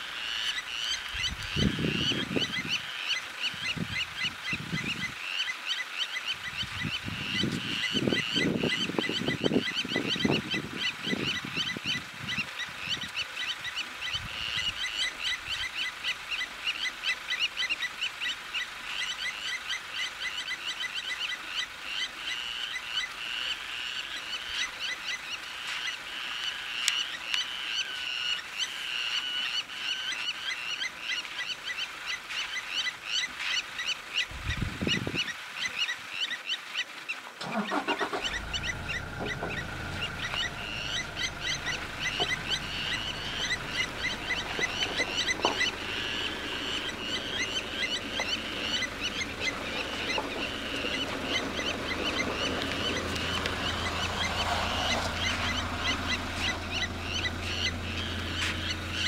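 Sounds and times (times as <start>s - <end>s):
birds giving metallic tink calls: 37.4s - 59.0s.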